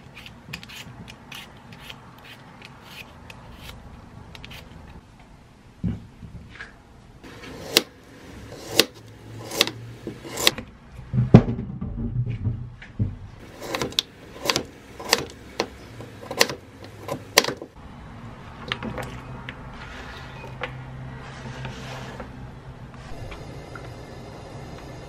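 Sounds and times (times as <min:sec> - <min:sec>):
knife chopping on plastic board: 0:08.6 - 0:10.6, 0:13.6 - 0:17.7.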